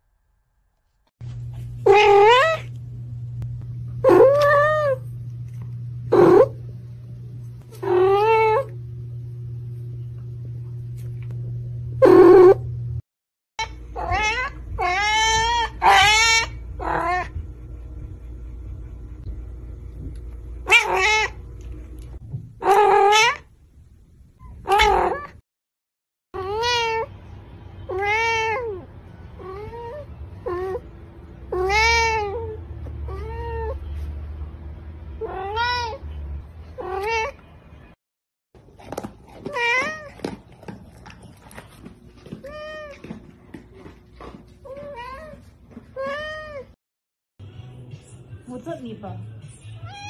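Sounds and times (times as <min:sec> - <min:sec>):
cats meowing: 0:01.8 - 0:02.7, 0:04.0 - 0:05.0, 0:07.7 - 0:08.7, 0:13.6 - 0:17.4, 0:20.7 - 0:21.4, 0:22.6 - 0:23.4, 0:24.5 - 0:25.4, 0:26.4 - 0:27.1, 0:27.9 - 0:30.8, 0:31.5 - 0:33.9, 0:35.2 - 0:36.1, 0:36.7 - 0:37.4, 0:39.4 - 0:40.5, 0:42.3 - 0:43.2.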